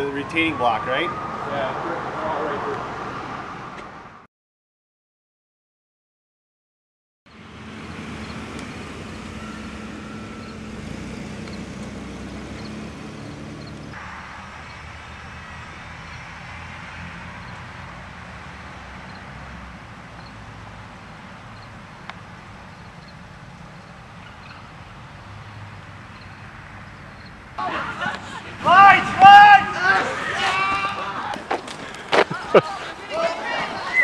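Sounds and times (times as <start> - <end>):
traffic noise: 0.0 - 4.3, 7.3 - 34.0
car engine rumbling: 7.3 - 33.6.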